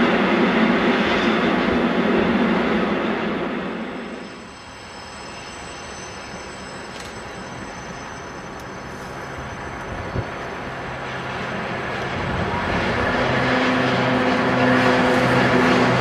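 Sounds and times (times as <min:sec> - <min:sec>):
diesel locomotive engine: 0:00.0 - 0:16.0
train wheels on rails: 0:00.0 - 0:16.0
high wheel squeal: 0:04.0 - 0:11.4.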